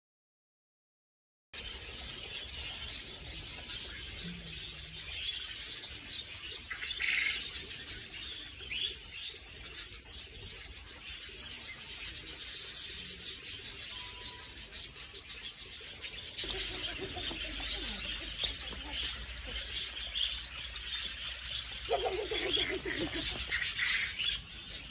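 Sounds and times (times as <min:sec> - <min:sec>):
budgerigars chattering: 0:01.6 - 0:24.9.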